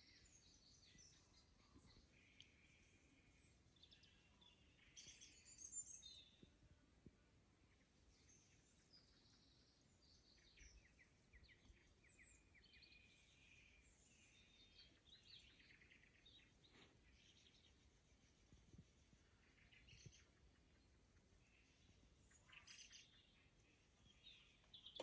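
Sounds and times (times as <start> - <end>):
faint birdsong: 0.0 - 25.0.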